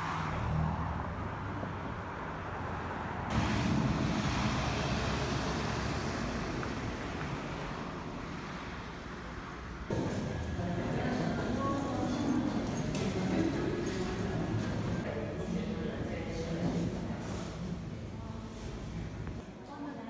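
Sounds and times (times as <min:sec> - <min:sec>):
road vehicle rushing and rumbling: 0:00.0 - 0:15.1.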